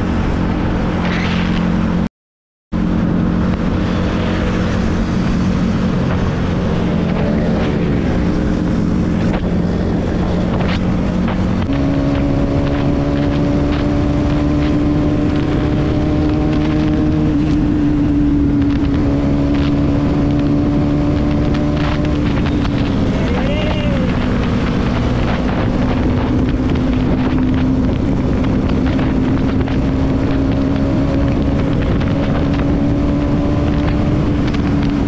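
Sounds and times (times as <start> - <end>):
wind noise on microphone: 0.0 - 2.1, 2.8 - 35.0
motorcycle engine running: 2.8 - 35.0.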